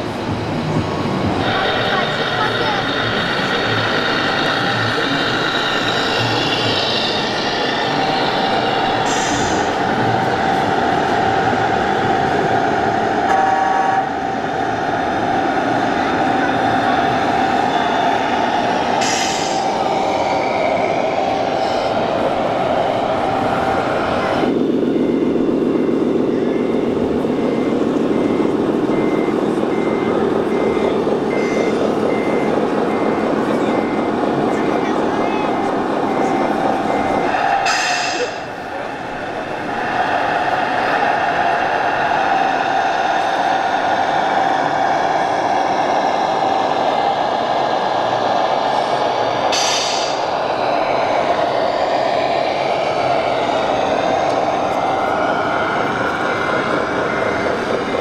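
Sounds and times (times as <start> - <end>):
heavy diesel engine running: 0.0 - 58.0
short high reversing beeps: 25.0 - 34.2.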